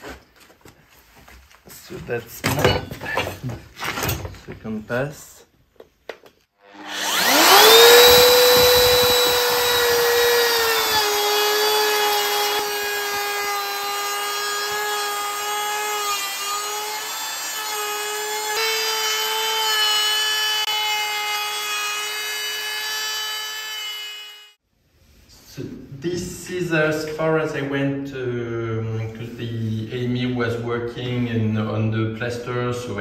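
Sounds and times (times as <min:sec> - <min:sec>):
electric router whining: 0:06.6 - 0:24.6
router bit cutting wood: 0:06.6 - 0:24.6.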